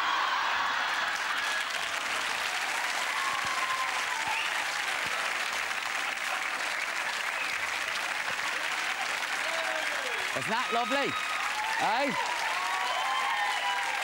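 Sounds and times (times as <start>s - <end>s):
audience applauding: 0.0s - 14.0s
whoops from audience: 2.6s - 5.0s, 9.4s - 14.0s.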